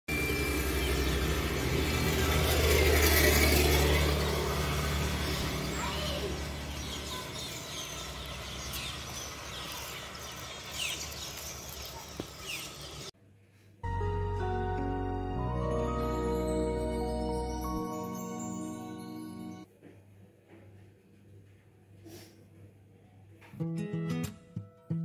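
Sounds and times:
vehicle engine passing: 0:00.1 - 0:11.7
birds chirping: 0:00.1 - 0:13.1.

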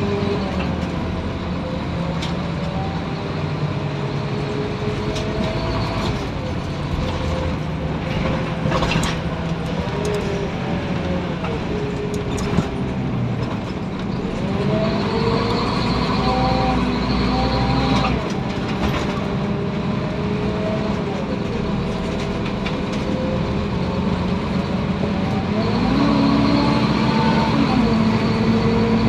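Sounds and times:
bus engine noise: 0:00.0 - 0:29.0
bus gearbox whine: 0:04.6 - 0:19.7.

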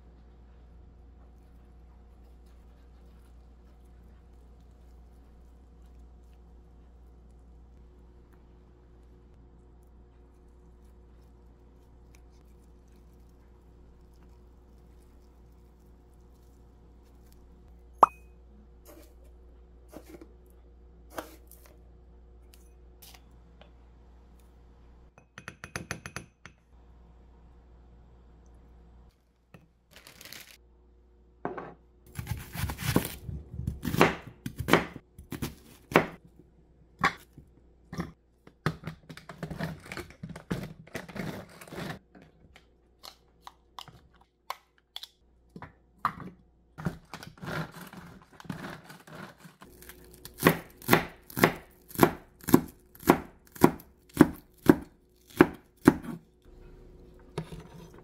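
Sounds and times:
knife cutting onion on board: 0:32.1 - 0:36.2, 0:47.4 - 0:56.2.

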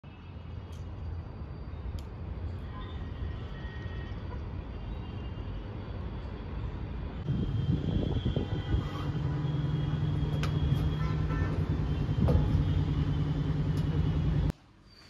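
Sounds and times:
machine droning: 0:07.3 - 0:14.5.

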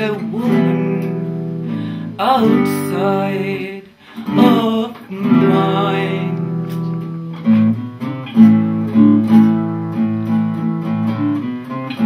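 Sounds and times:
woman singing: 0:00.0 - 0:01.5, 0:02.1 - 0:06.7
acoustic guitar chords: 0:00.0 - 0:12.0.

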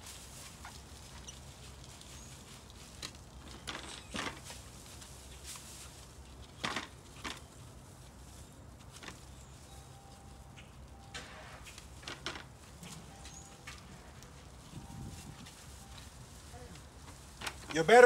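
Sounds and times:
scraping and rustling strokes: 0:00.0 - 0:18.0.

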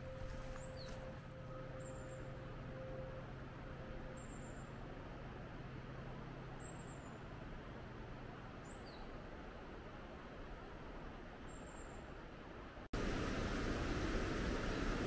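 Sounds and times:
river water rushing: 0:13.0 - 0:15.0.

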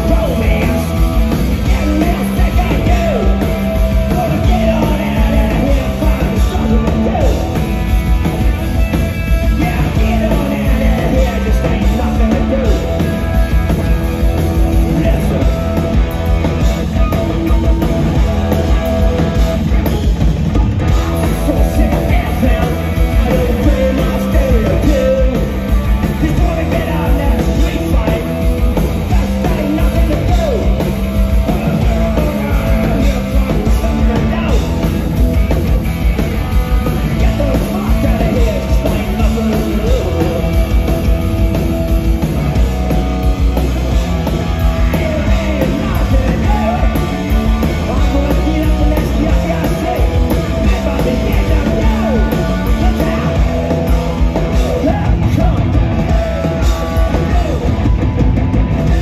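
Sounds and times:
bass guitar: 0:00.0 - 0:59.0
drum kit: 0:00.0 - 0:59.0
electric guitars: 0:00.0 - 0:59.0
person singing: 0:21.2 - 0:35.0, 0:36.9 - 0:41.0, 0:44.6 - 0:58.2.

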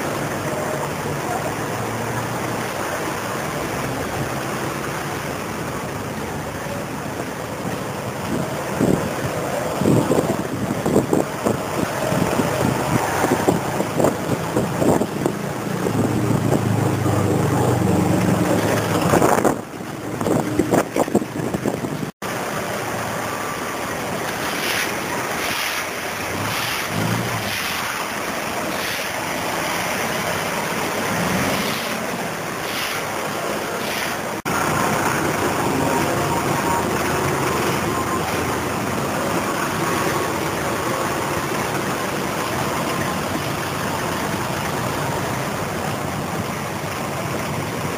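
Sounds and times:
street noise: 0:00.0 - 0:47.9
wind on microphone: 0:08.2 - 0:22.2.

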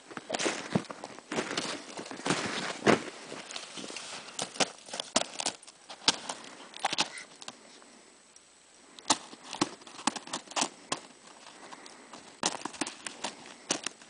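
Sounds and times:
footsteps crunching in snow: 0:00.0 - 0:07.1.

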